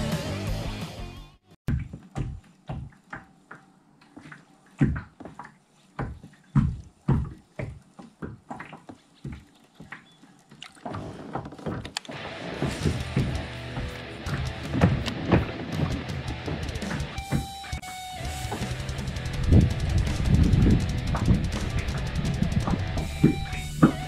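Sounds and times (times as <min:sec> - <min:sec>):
faint water lapping: 0:05.4 - 0:11.4.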